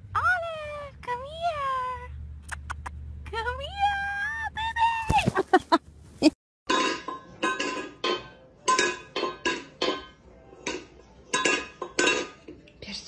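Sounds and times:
metal bowl clanking on floor: 6.7s - 12.6s.

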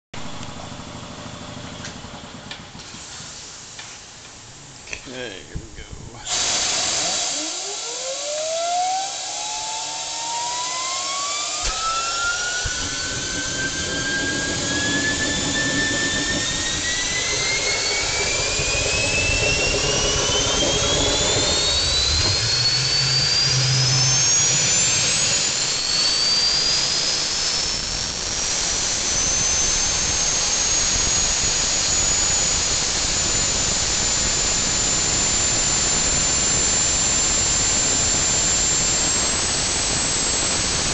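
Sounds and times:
gas turbine rushing noise: 0.2s - 40.9s
turbine compressor whine: 0.2s - 40.9s.

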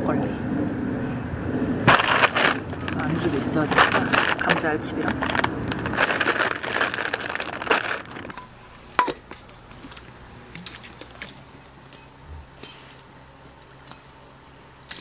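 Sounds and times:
plastic bag crinkling: 1.9s - 8.6s.

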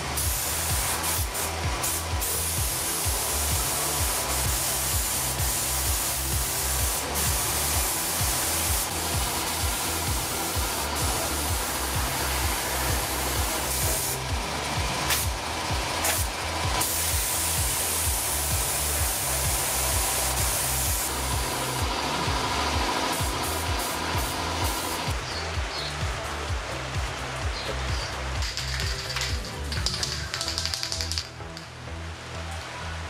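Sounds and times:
paint spray gun hissing: 0.0s - 26.0s, 27.9s - 31.3s
music with bass beat: 0.0s - 33.0s.

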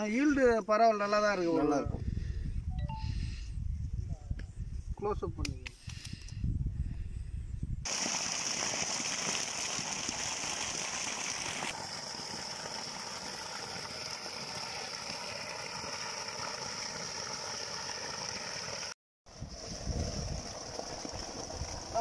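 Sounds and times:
water gushing from a pipe: 7.9s - 22.0s.

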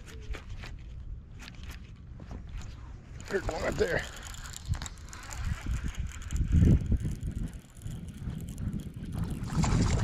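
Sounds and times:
wind rumble on microphone: 2.2s - 10.0s
fishing reel cranking: 3.1s - 9.4s.

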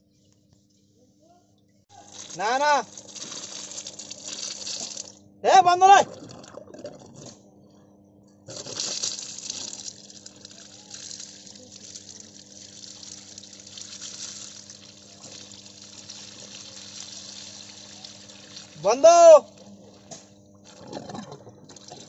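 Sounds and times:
faint steady hum: 0.0s - 22.0s
liquid gushing and splashing: 2.0s - 5.2s, 8.5s - 19.0s.

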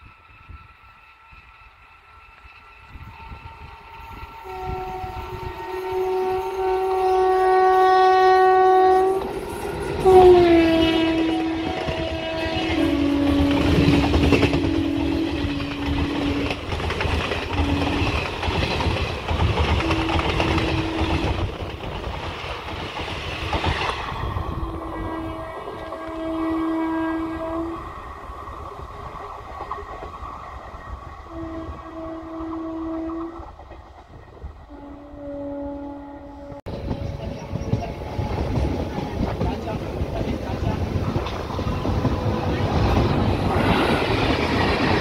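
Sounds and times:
locomotive horn blast: 3.4s - 16.7s, 17.4s - 18.3s, 19.6s - 21.5s, 24.4s - 28.0s, 31.3s - 33.6s, 34.7s - 39.4s
train coaches clattering over rails: 11.1s - 26.1s, 36.7s - 45.0s.

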